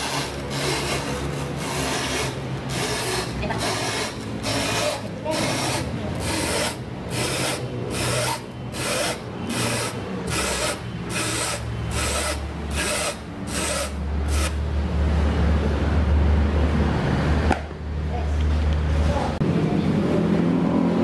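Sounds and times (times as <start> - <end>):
rubber scraping against blade: 0.0 - 14.6.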